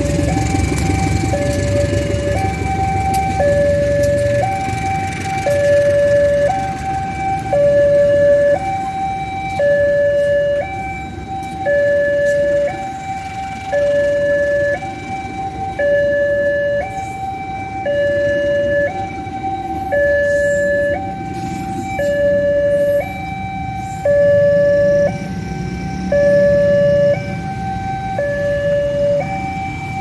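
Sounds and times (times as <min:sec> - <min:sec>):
train coaches rumbling past: 0:00.0 - 0:17.7
two-tone crossing alarm siren: 0:00.0 - 0:30.0.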